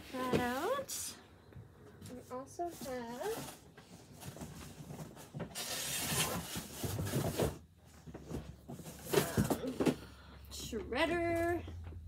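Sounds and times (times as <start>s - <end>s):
rustling and scraping of cardboard: 2.3s - 10.0s.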